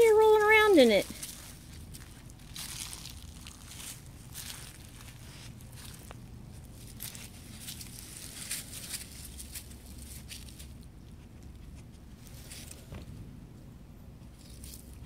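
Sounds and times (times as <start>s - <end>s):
dog rustling in dry leaves: 0.0s - 10.8s.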